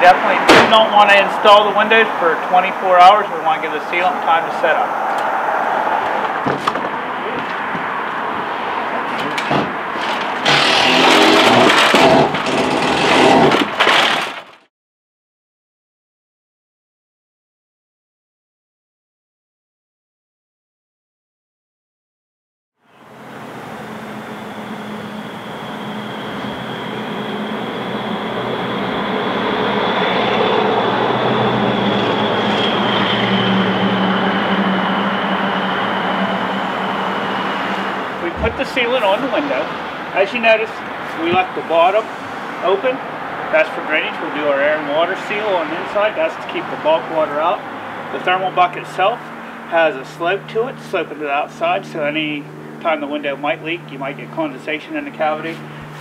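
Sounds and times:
outdoor background noise: 0.0 - 14.6
mechanical drone with thin whine: 22.8 - 39.6, 46.8 - 55.9
vehicle engine humming: 22.9 - 56.0.

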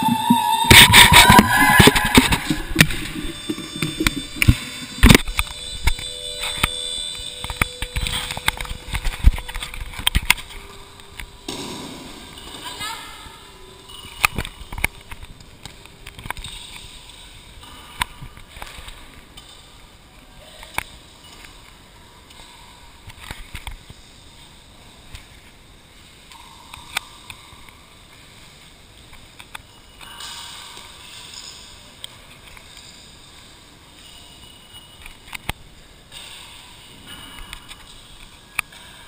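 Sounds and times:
knocks and thuds in gym hall: 11.5 - 13.2.

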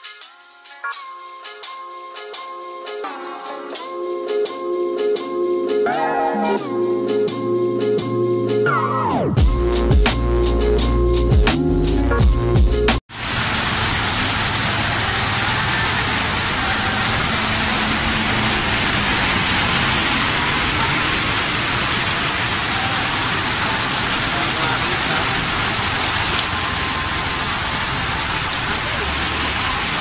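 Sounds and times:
heavy rain on paved road: 13.1 - 30.0.

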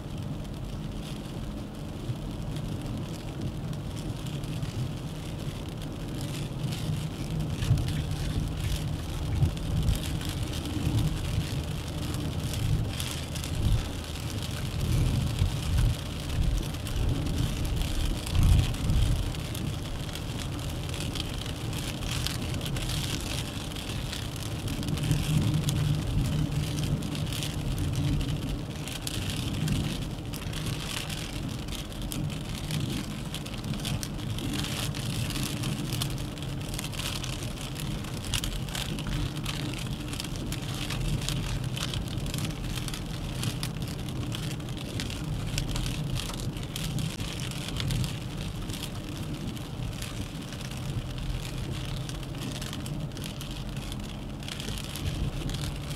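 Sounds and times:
tyre and road rumble: 0.0 - 55.9.

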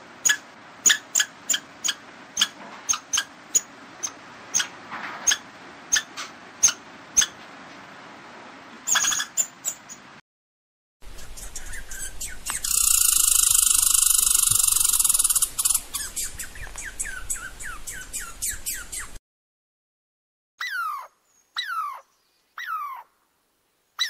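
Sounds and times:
sharp squeaky chirps: 0.2 - 7.4, 8.9 - 10.1, 11.1 - 19.2, 20.6 - 22.0
high insect buzz: 12.6 - 15.8.

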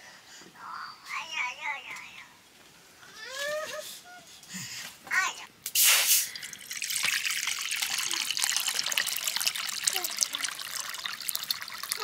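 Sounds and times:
water running and trickling: 6.3 - 12.0.

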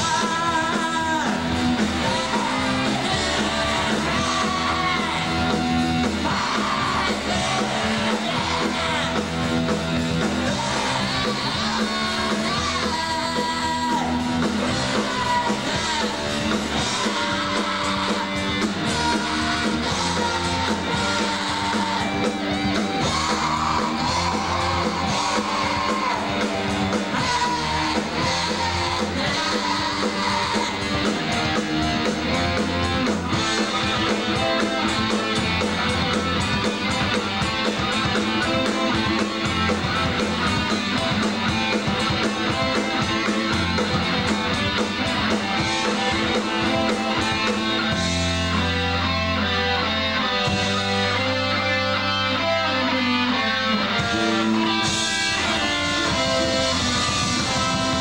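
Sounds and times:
live rock band playing: 0.0 - 58.0
drum beat: 14.2 - 48.2.

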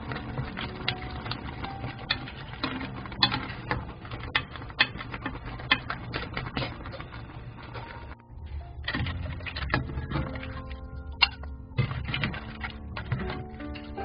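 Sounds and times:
broth boiling rumble: 0.0 - 14.0.

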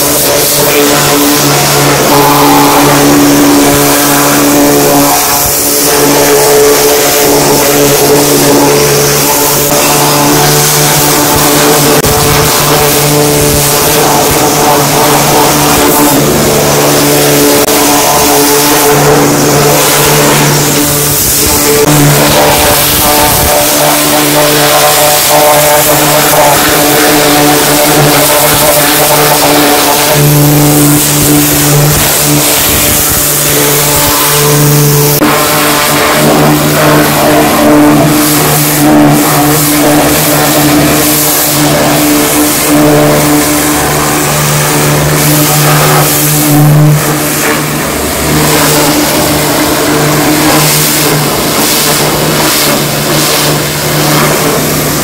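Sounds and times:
machine drone: 0.0 - 55.0
pressure washer water jet hiss: 0.0 - 55.0.

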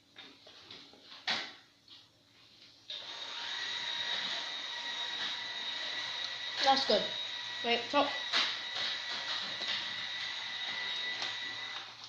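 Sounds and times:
small motor whining: 2.9 - 12.0.

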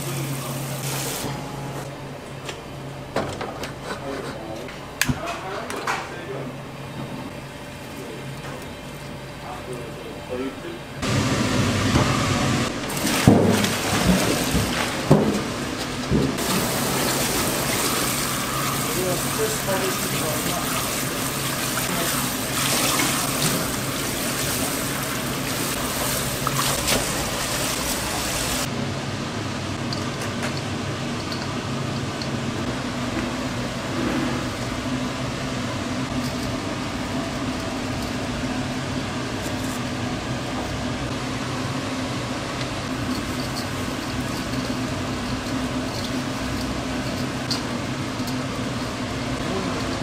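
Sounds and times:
mechanical hum: 0.0 - 50.0
tap water running: 11.0 - 28.7.

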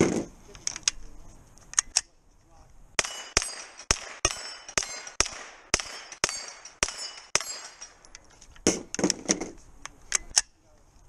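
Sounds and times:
gunshots with ringing steel: 3.0 - 8.1
sharp cracks and clatter: 3.0 - 10.6.

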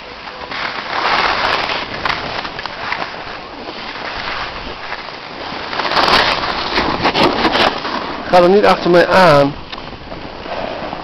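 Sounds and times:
sliding on packed snow: 0.0 - 11.0.

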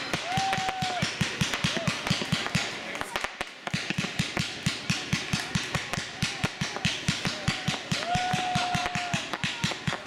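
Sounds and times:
firework whistle: 0.0 - 2.0.

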